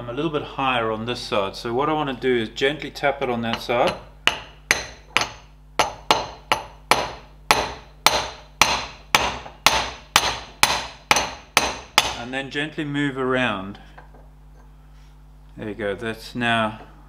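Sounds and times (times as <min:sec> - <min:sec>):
mallet tapping metal driver: 0:03.5 - 0:12.2.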